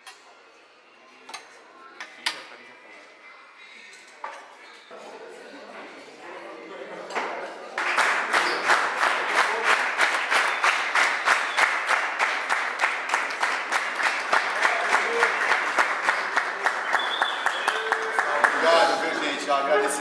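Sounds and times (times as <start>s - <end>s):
group clapping in rhythm: 7.8s - 19.4s
voices: 16.1s - 20.0s.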